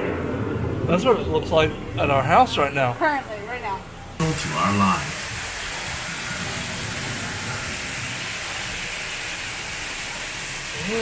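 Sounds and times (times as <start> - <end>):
rushing water effects hiss: 4.2 - 11.0.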